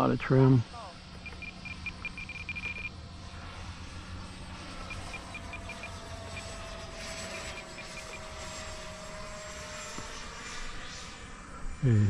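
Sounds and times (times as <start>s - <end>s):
model jet fan whine: 0.0s - 12.0s
short high beeps: 1.2s - 2.9s, 4.8s - 6.6s.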